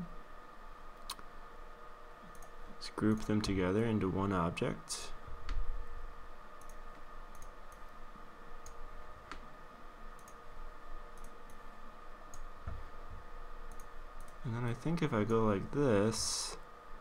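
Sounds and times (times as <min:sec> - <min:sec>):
faint electrical hum: 0:00.0 - 0:17.0
computer mouse clicks: 0:02.3 - 0:03.4, 0:06.6 - 0:07.9, 0:10.2 - 0:10.4, 0:11.1 - 0:11.6, 0:13.7 - 0:14.4.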